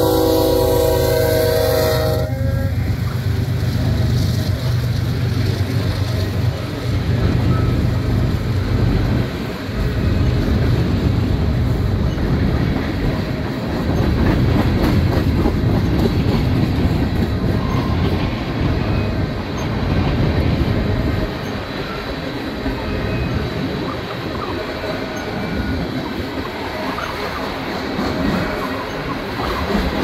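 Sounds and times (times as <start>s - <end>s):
steel wheels rumbling on rail: 0.0s - 30.0s
wheels clacking over rail joints: 2.8s - 30.0s.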